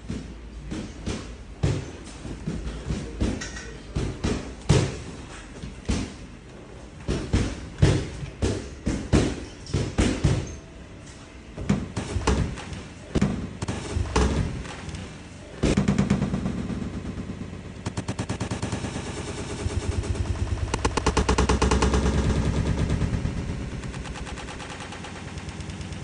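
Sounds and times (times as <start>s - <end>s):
boxing gloves thudding: 0.0s - 6.3s, 7.0s - 10.6s, 11.6s - 16.1s.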